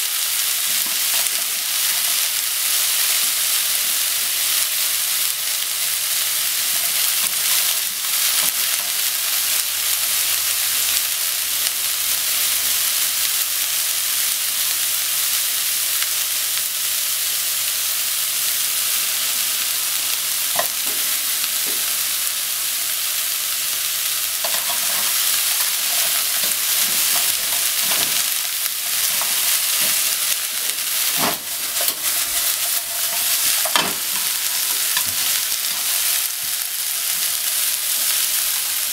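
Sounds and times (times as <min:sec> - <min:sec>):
cabbage sizzling in a frying pan: 0:00.0 - 0:38.9.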